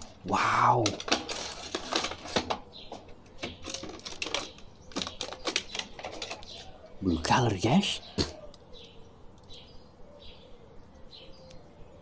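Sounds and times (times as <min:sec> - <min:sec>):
plastic packaging crinkling: 0:00.0 - 0:06.7.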